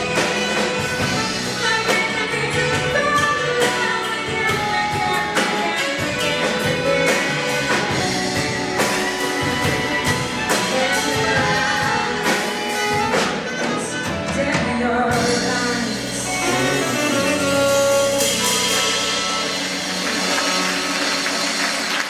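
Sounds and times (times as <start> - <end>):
woman singing into microphone: 1.6 - 5.8, 10.4 - 18.4
saxophones: 15.5 - 22.0.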